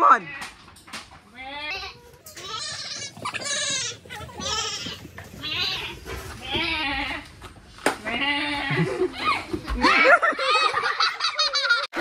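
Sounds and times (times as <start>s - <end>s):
goats bleating: 1.3s - 7.4s, 8.0s - 9.2s.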